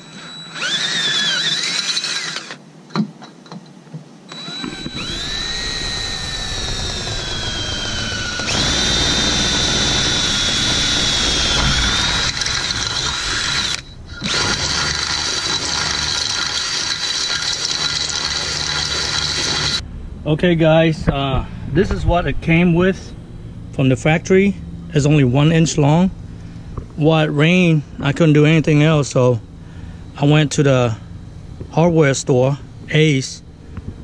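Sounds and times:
cordless drill boring through metal: 0.0s - 2.6s, 4.3s - 19.8s.

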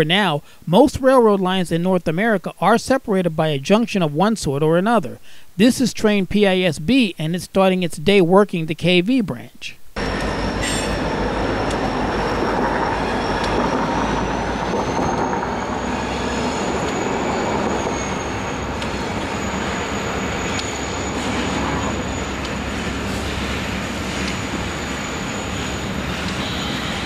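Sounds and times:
freight train rumbling on rails: 10.0s - 27.0s
high wheel squeal: 10.0s - 27.0s.

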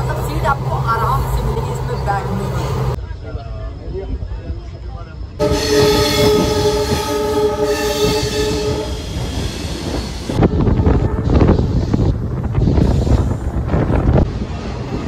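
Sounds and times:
moving train rumble and clatter: 0.0s - 15.0s
train horn blast: 5.4s - 9.2s, 10.4s - 12.1s.

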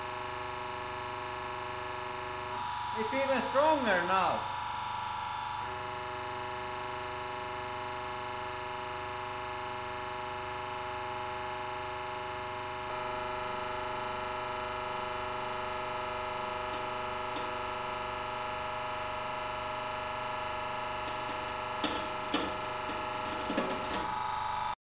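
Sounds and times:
hydraulic press humming: 12.5s - 24.7s.

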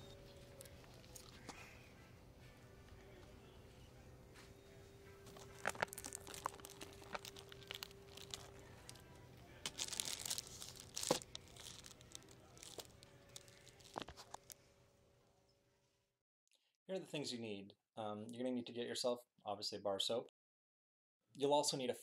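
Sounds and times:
packaging crinkling and rustling: 5.2s - 14.6s
packaging clicks: 5.3s - 14.6s.

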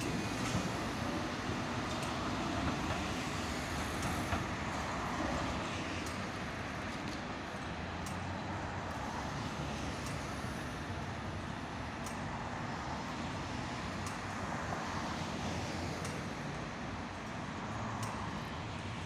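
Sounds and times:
cars passing: 0.0s - 19.0s.

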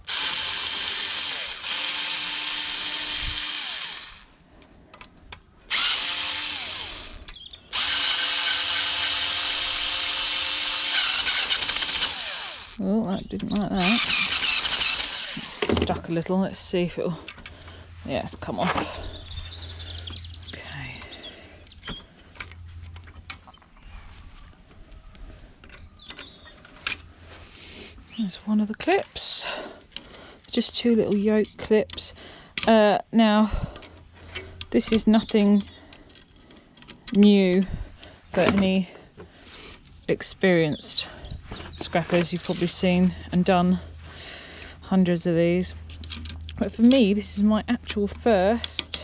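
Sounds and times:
cordless drill running: 0.0s - 4.4s, 5.7s - 12.8s, 13.8s - 15.8s.

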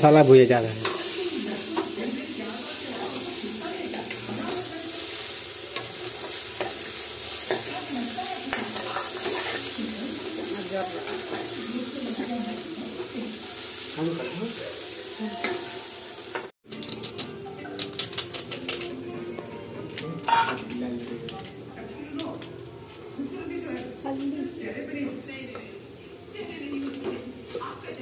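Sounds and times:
food sizzling in oil: 0.0s - 28.0s
ladle stirring and scraping: 0.7s - 12.4s.

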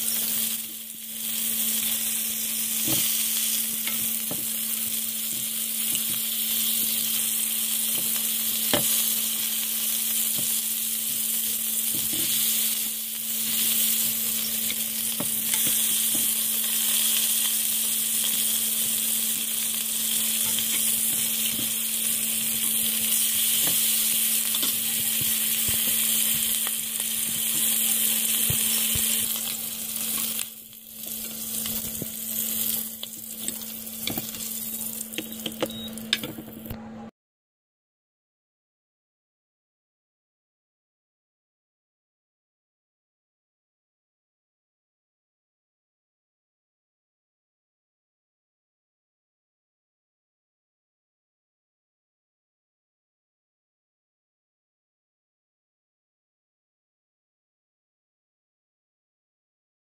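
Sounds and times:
meat sizzling in a frying pan: 0.0s - 36.6s.

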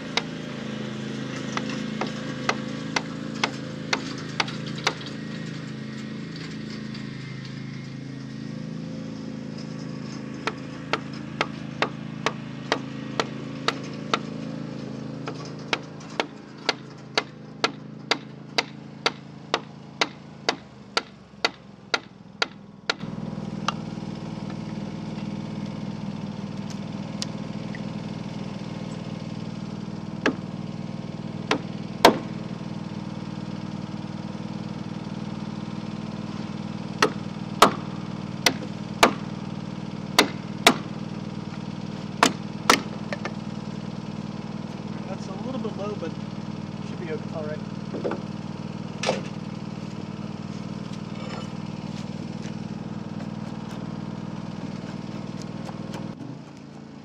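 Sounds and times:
lawn mower engine drone: 0.0s - 57.0s
wooden mallet striking chisel: 15.7s - 23.0s, 38.4s - 39.2s, 40.2s - 40.8s.

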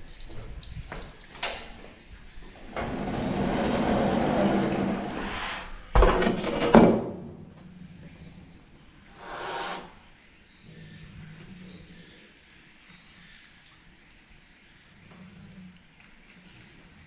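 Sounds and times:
sliding hatch door scraping: 2.6s - 6.6s.

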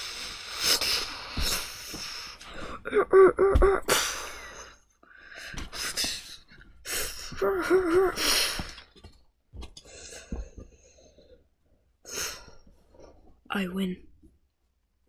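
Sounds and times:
person making breathy gasps: 0.0s - 6.2s, 6.9s - 8.8s.

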